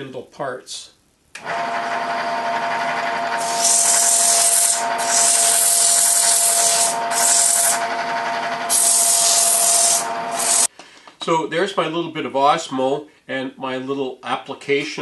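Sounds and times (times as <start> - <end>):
lathe motor whine: 1.4 - 10.7
sandpaper hissing on wood: 3.4 - 7.8, 8.7 - 10.7.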